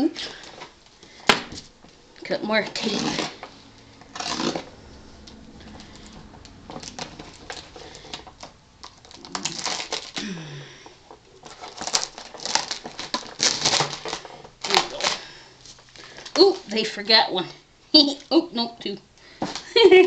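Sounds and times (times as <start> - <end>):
packing tape peeling: 4.1 - 4.7, 6.8 - 10.3, 11.3 - 16.4
cardboard rustling: 6.8 - 10.2, 10.9 - 16.7.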